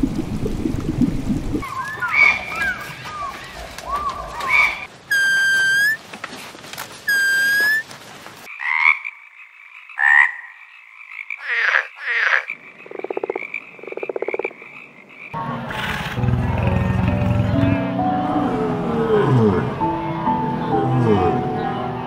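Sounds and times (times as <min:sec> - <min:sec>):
whistled note: 0:05.1 - 0:06.0, 0:07.1 - 0:07.8
frog rattling croaks: 0:08.5 - 0:15.4
frogs chirping: 0:08.5 - 0:15.4
music: 0:16.1 - 0:22.0.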